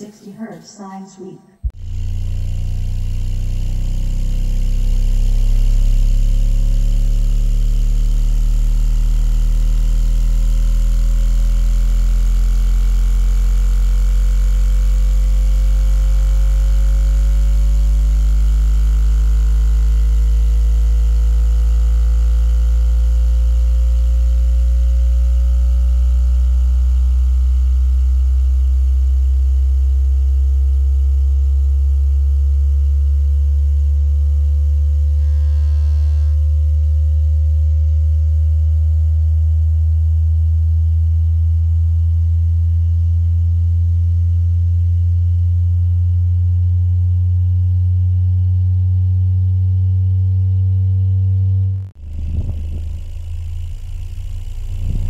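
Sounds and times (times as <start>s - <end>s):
rising low bass tone: 1.6s - 55.0s
faint higher rising tones: 52.0s - 55.0s.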